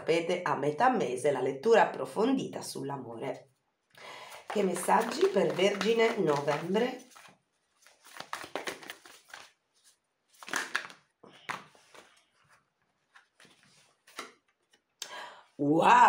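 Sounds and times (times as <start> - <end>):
cards being shuffled: 4.3 - 14.9.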